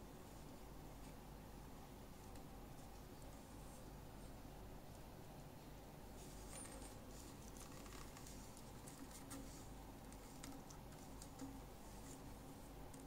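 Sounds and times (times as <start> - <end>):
handling clicks and rubs: 6.2 - 13.0.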